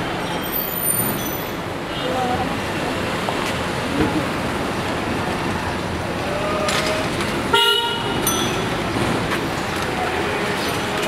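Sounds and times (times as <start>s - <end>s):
street traffic noise: 0.0s - 11.0s
vehicle horn honking: 7.5s - 8.3s.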